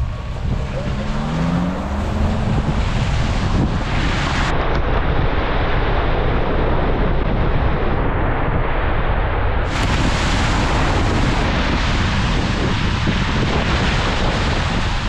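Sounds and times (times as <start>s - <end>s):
tyres ploughing through mud puddle: 0.0s - 4.5s
wind buffeting microphone: 0.0s - 15.0s
mud spraying: 9.7s - 15.0s.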